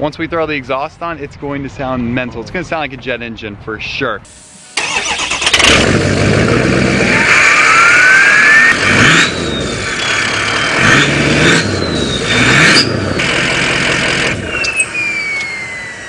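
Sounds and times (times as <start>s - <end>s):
diesel engine revving: 4.7s - 16.0s
turbo whistling: 6.9s - 16.0s.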